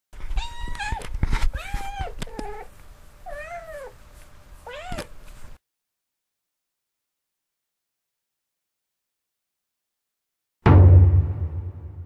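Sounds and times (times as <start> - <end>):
cat meowing: 0.3 - 4.0, 4.6 - 5.1.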